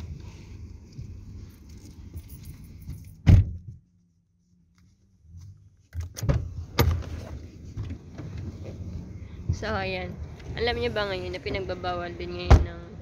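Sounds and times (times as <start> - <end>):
rustling and handling noise: 0.0 - 3.2.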